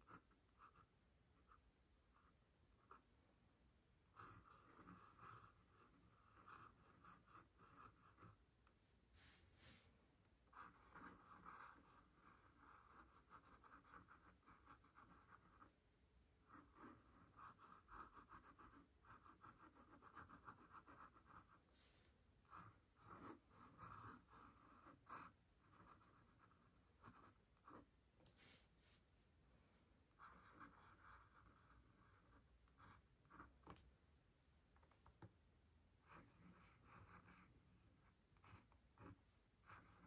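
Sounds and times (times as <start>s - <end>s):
pen nib scratching paper: 0.0s - 3.1s, 4.1s - 8.4s, 10.5s - 15.8s, 16.4s - 27.9s, 30.1s - 33.8s, 36.0s - 40.0s.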